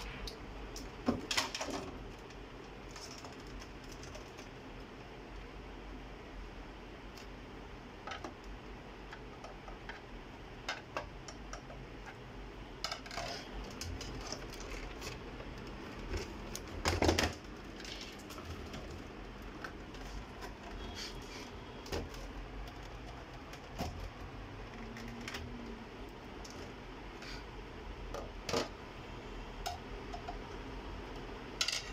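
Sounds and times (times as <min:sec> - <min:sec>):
clicks and clatter of parts: 0:00.0 - 0:04.9, 0:12.8 - 0:25.8, 0:31.6 - 0:31.9.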